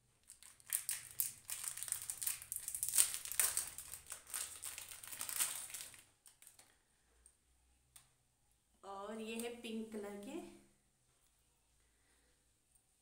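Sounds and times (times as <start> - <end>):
plastic packet crinkling: 0.2 - 6.8.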